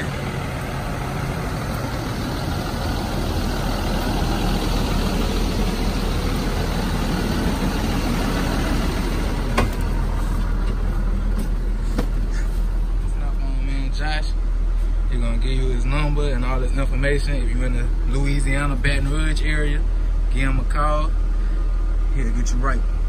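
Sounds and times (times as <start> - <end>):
van engine idling: 0.0 - 23.0.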